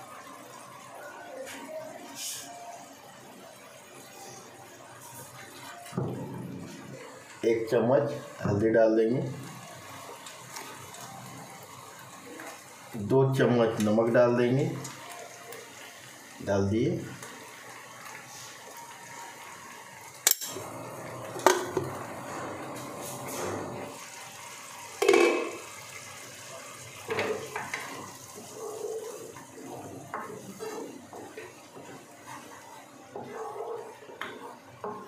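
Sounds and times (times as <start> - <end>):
utensils knocking against pan: 25.0 - 25.6
spatula scraping frying pan: 27.4 - 35.0.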